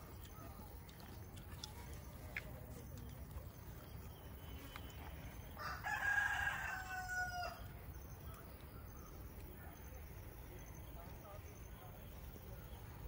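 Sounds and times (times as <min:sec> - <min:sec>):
rooster crowing: 0:05.6 - 0:07.6.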